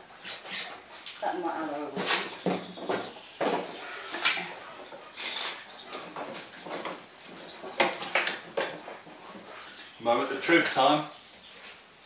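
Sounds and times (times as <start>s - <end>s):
metal clamps clinking and rattling: 5.2s - 5.6s.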